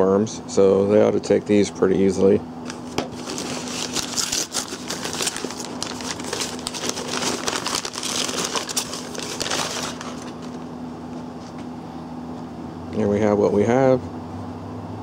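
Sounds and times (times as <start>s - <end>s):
packing paper crumpling: 2.7s - 10.7s.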